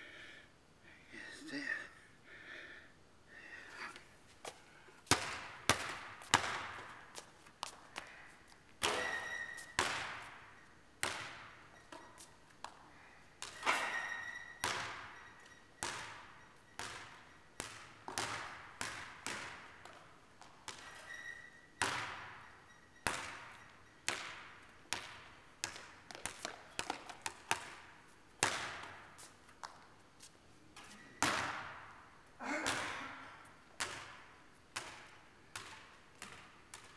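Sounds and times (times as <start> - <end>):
basketball bouncing on court: 5.0 - 12.8, 13.4 - 30.0, 30.8 - 36.9
short squeaks: 8.8 - 9.8, 13.5 - 15.8, 20.7 - 21.8, 22.4 - 24.0, 30.8 - 31.2
ball banging off backboard and rim: 8.8 - 12.1, 13.4 - 15.2, 15.8 - 20.0, 21.8 - 22.4, 23.0 - 27.8, 31.2 - 31.9.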